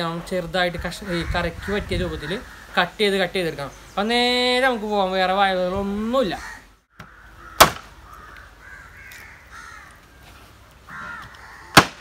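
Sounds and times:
crows cawing: 1.0s - 2.9s, 6.3s - 12.0s.

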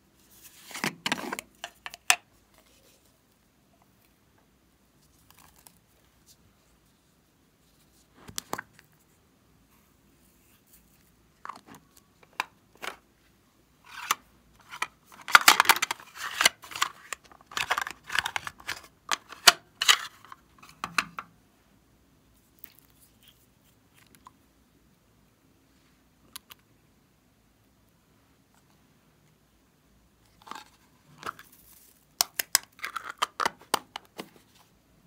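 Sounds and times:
plastic container clicks and crackles: 13.9s - 21.3s, 32.1s - 34.3s.

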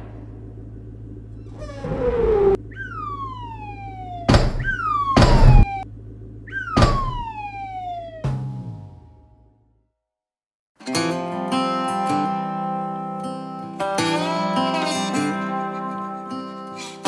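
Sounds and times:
whoosh: 0.0s - 0.6s, 1.4s - 2.6s
long falling tones: 0.0s - 5.8s
low steady hum: 0.0s - 9.2s.

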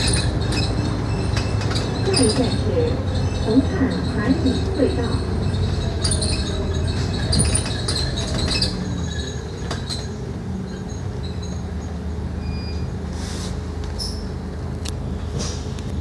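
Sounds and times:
bus fittings rattling: 0.0s - 12.3s
bus diesel engine droning: 0.0s - 16.0s.

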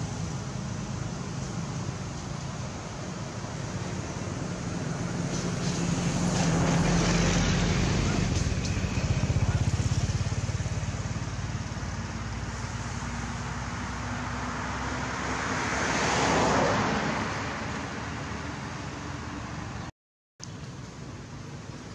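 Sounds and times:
low engine rumble: 0.0s - 14.6s
vehicle passing: 0.0s - 19.9s.

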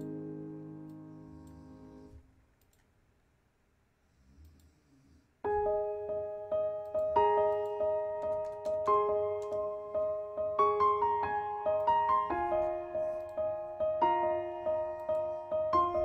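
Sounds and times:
piano music: 0.0s - 2.1s, 5.5s - 16.0s.

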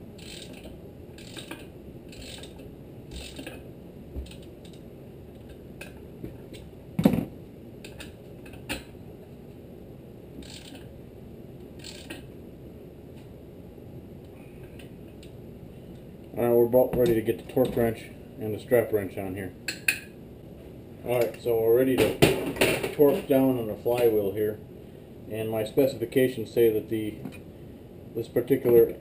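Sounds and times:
ratchet pawl clicking: 0.2s - 3.6s, 10.4s - 10.9s, 11.8s - 12.2s.

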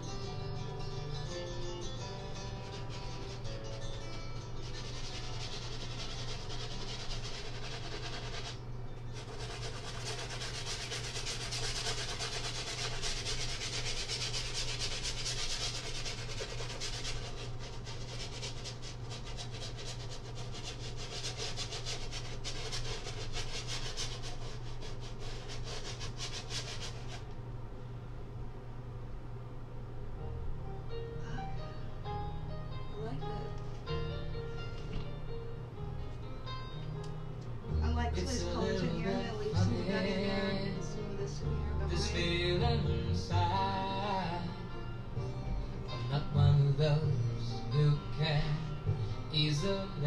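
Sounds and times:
brush scrubbing on canvas: 4.6s - 27.3s.

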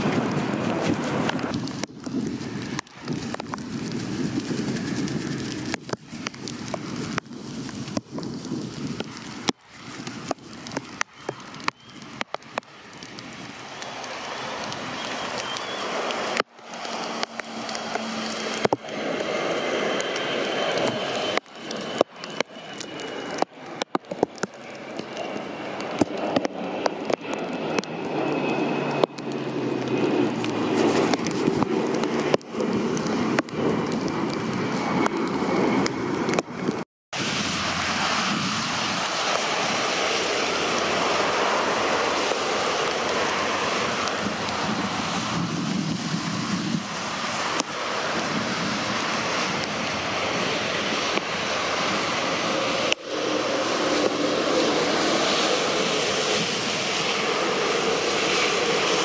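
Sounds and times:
heavy rain hissing: 0.0s - 23.3s, 37.2s - 59.0s
jet engines whining: 0.0s - 59.0s
wind: 0.0s - 59.0s.

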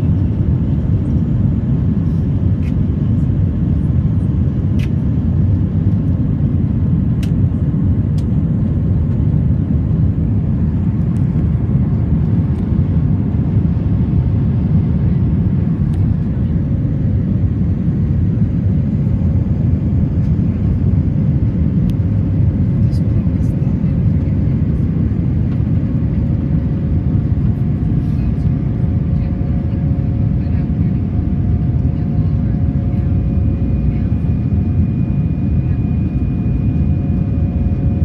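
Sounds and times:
airplane cabin engine roar: 0.0s - 38.0s.

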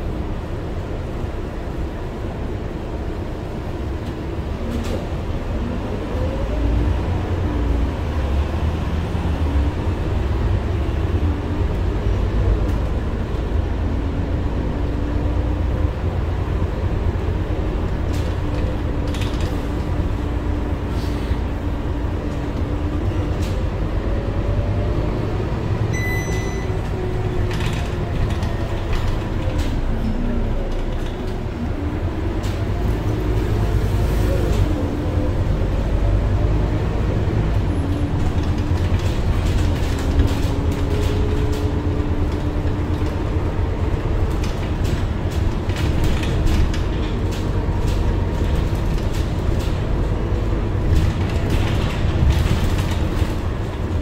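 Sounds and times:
bus diesel engine rumbling: 0.0s - 54.0s
short electronic beep: 25.9s - 26.8s.

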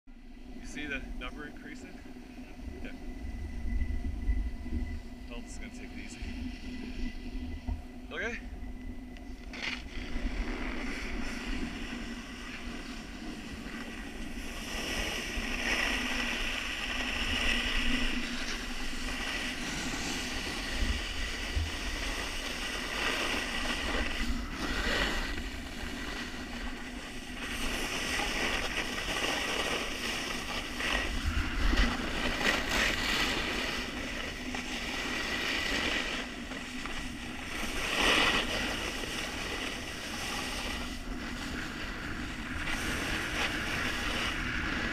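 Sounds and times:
wind rumbling on microphone: 0.2s - 44.9s
snowboard scraping on snow: 9.4s - 44.9s.

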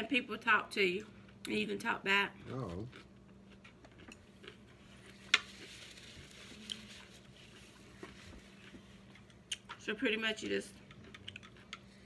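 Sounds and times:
chopsticks scraping and rustling: 2.9s - 9.4s.

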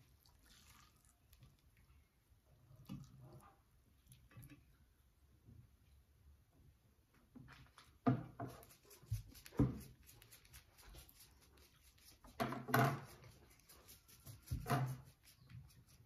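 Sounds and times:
spice container shaking: 8.6s - 12.4s.

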